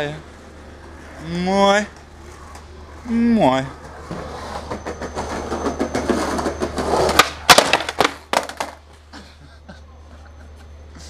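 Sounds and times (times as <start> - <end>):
skateboard wheels rolling on concrete: 0.0 - 9.2
skateboard clattering and slamming: 3.8 - 8.8
skater falling: 3.8 - 9.3.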